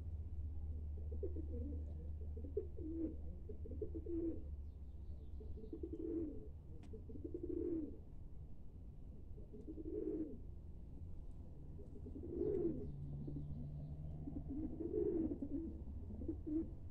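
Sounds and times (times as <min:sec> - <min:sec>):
pigeons cooing: 0:00.8 - 0:04.6, 0:05.4 - 0:08.0, 0:09.4 - 0:10.5, 0:11.8 - 0:16.9.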